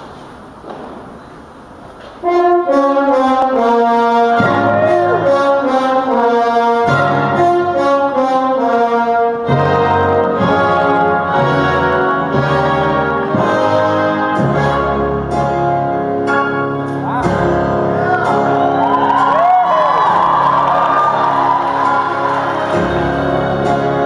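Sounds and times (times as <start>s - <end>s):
brass melody: 2.2s - 24.0s
low bass notes: 9.5s - 18.9s.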